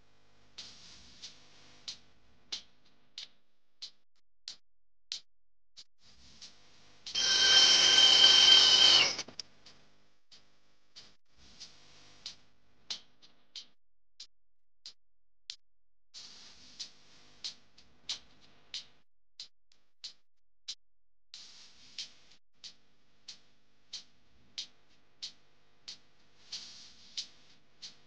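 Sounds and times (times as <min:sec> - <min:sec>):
faint background music ticks: 0:00.0 - 0:04.6, 0:06.1 - 0:07.1, 0:09.4 - 0:13.8, 0:16.2 - 0:19.0, 0:21.4 - 0:28.0
angle grinder whirring: 0:07.2 - 0:09.3.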